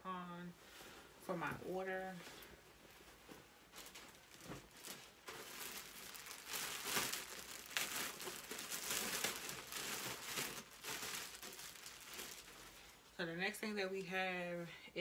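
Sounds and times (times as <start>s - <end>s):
packaging crinkling and rustling: 3.0s - 13.1s.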